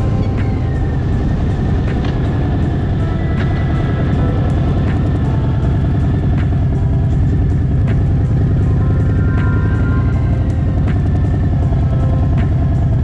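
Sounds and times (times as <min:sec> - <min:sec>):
road noise: 0:00.0 - 0:13.0
vehicle engine rumble: 0:00.0 - 0:13.0
wind: 0:00.0 - 0:13.0.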